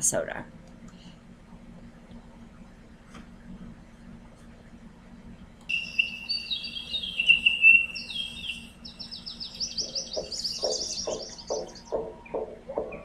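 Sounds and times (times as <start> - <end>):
birdsong with trills: 5.7 - 13.0
low steady beat: 9.8 - 13.0.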